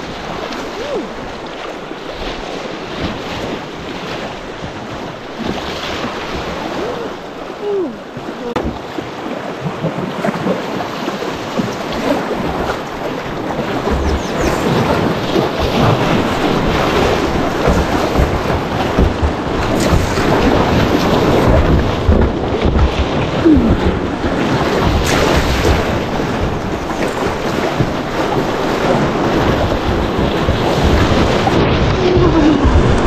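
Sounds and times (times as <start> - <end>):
river rapids rushing: 5.3 - 9.3.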